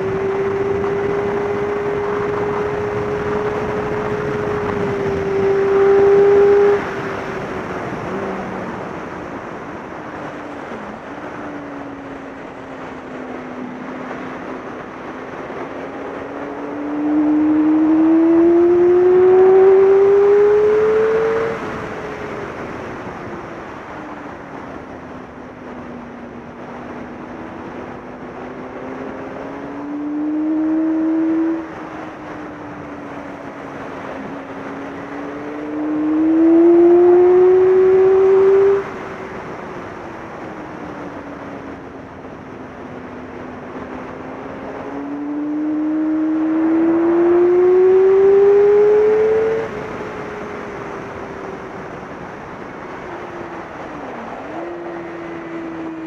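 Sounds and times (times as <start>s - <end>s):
motorcycle engine revving: 0.0s - 9.2s, 13.4s - 22.6s, 27.9s - 39.6s, 42.8s - 56.0s
wind rush: 0.0s - 56.0s.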